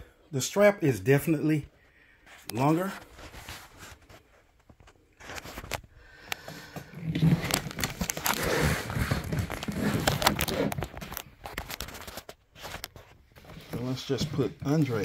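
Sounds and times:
rustling with sharp clicks: 0:02.2 - 0:15.0
hands brushing microphone: 0:12.6 - 0:15.0.

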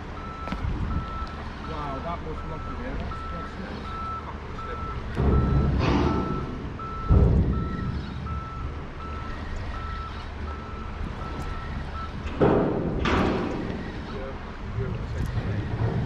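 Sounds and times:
vehicle reversing alarm beeping: 0:00.0 - 0:16.0
low thuds: 0:04.9 - 0:09.4.

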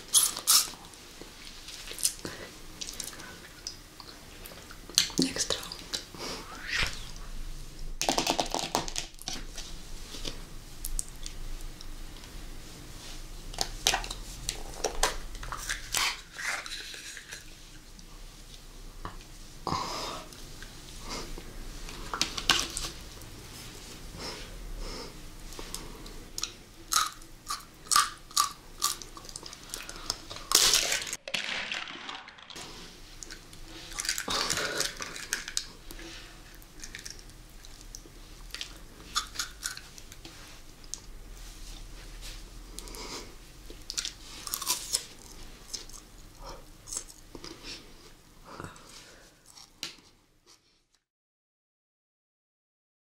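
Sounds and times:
chewing jelly candy: 0:43.7 - 0:47.6.

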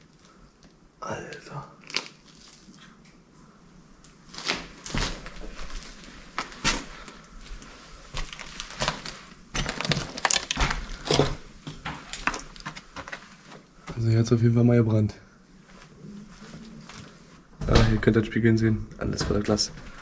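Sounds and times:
footsteps crunching over debris: 0:04.3 - 0:14.1.

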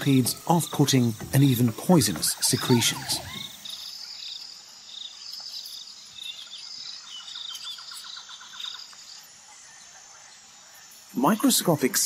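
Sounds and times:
rapid pulsing call: 0:00.0 - 0:03.9
insects and birds chirping: 0:00.0 - 0:12.0.

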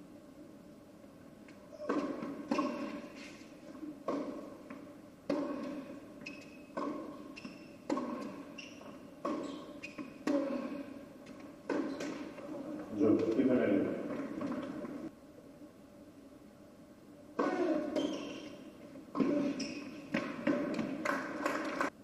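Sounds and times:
tennis ball bouncing: 0:01.5 - 0:15.1, 0:17.4 - 0:21.8
tennis racket strikes: 0:01.7 - 0:12.5, 0:17.4 - 0:21.3.

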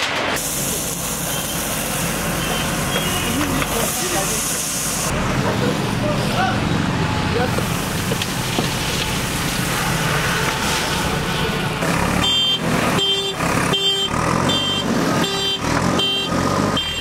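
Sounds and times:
diesel engine running: 0:00.1 - 0:17.0
reversing alarm beeping: 0:12.2 - 0:17.0.

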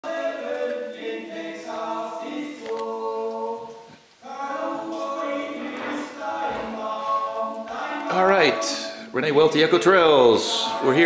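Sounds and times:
choir singing a cappella: 0:00.0 - 0:11.0.

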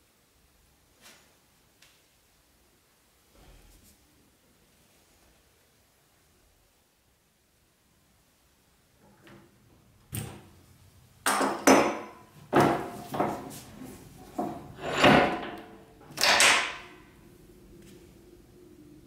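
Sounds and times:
metal knocks and scrapes at a vise: 0:11.3 - 0:16.9.

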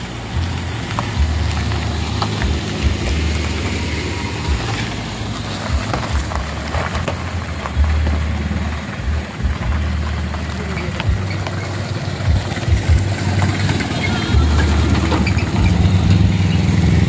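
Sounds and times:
car engine running low: 0:00.0 - 0:17.0
tyres crunching on gravel: 0:00.0 - 0:17.0.

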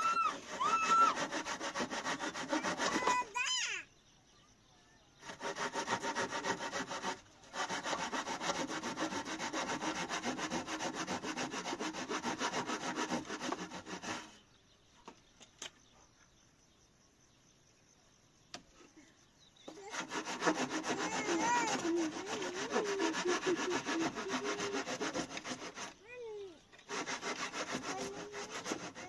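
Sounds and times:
hand saw cutting wood: 0:00.0 - 0:03.5, 0:05.2 - 0:14.4, 0:19.7 - 0:26.2, 0:26.8 - 0:29.0.

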